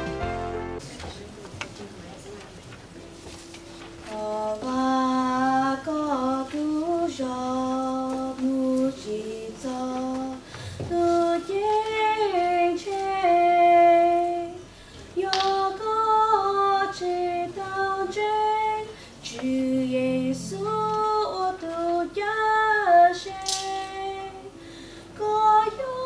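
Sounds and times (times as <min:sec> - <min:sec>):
singers breathing: 0:10.4 - 0:10.9, 0:14.6 - 0:15.2, 0:18.9 - 0:19.2, 0:24.5 - 0:25.2
choir singing a hymn: 0:15.2 - 0:24.6.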